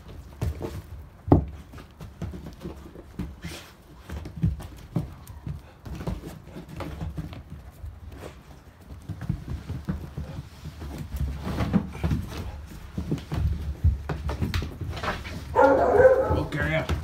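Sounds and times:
dog paws scuffing on concrete: 0:00.0 - 0:17.0
dog sniffing: 0:15.4 - 0:16.5.

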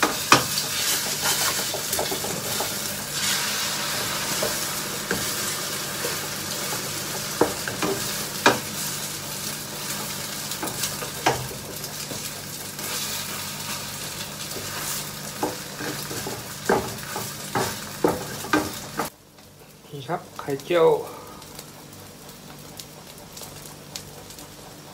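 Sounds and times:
spatula tapping pan: 0:00.0 - 0:02.8, 0:06.0 - 0:08.7, 0:15.4 - 0:19.1
egg sizzling in frying pan: 0:00.0 - 0:19.8, 0:20.4 - 0:24.9.

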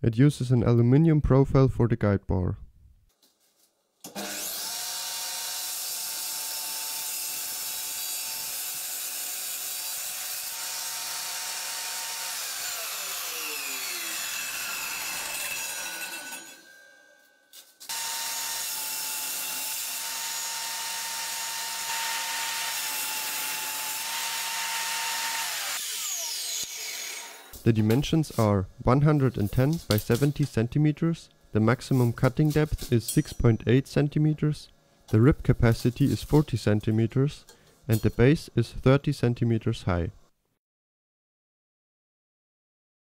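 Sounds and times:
saw winding down: 0:04.1 - 0:17.2, 0:17.9 - 0:27.6
circular saw whining: 0:09.8 - 0:27.6.

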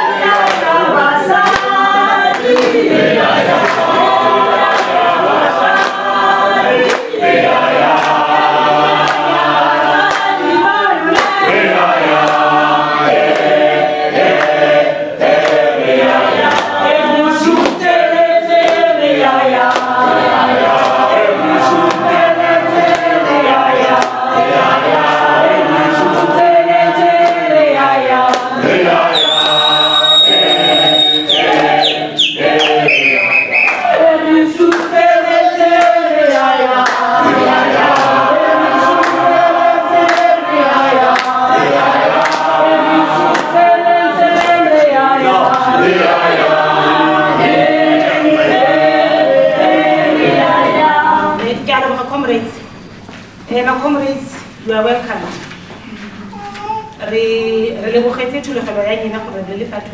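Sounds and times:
group singing in harmony: 0:00.0 - 0:51.8
steady high tone: 0:28.9 - 0:34.0.

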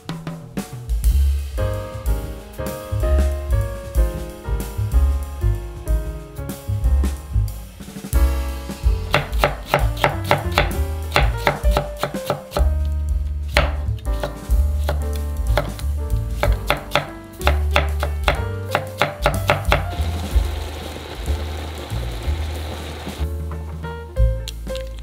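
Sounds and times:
background music with bass: 0:00.0 - 0:25.0
pot bubbling: 0:19.8 - 0:23.2.

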